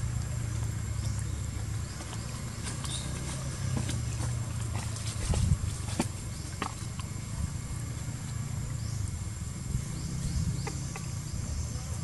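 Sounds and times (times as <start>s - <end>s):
bird chirps: 1.0s - 4.1s.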